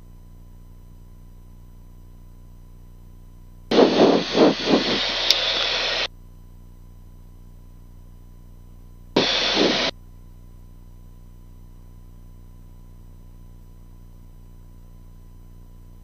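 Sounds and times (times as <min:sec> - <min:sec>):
faint intercom hum: 0:03.7 - 0:06.1, 0:09.2 - 0:09.9
radio squelch static hiss: 0:03.7 - 0:06.1, 0:09.2 - 0:09.9.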